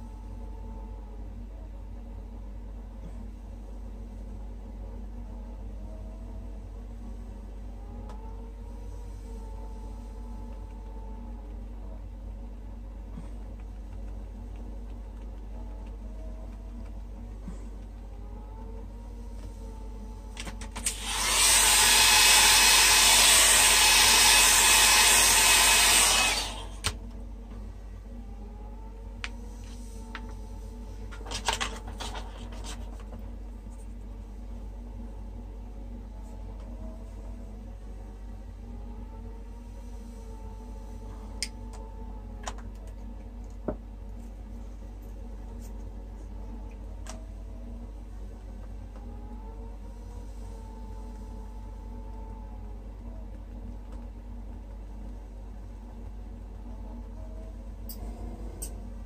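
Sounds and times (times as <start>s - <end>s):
steady low hum: 0.0s - 59.0s
hair dryer blowing: 20.8s - 27.0s.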